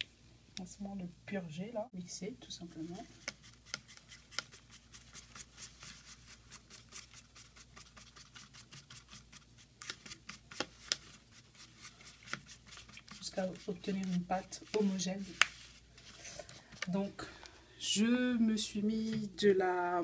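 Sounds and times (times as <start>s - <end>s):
brush stirring cream in bowl: 2.5s - 17.1s.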